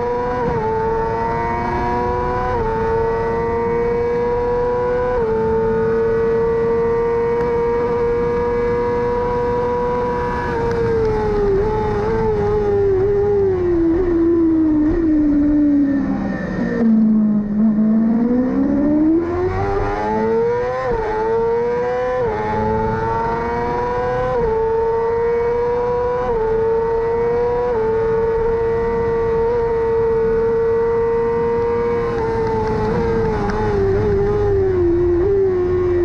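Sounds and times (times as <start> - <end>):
racing motorcycle engine revving: 0.0 - 36.0
gear changes: 22.2 - 36.0.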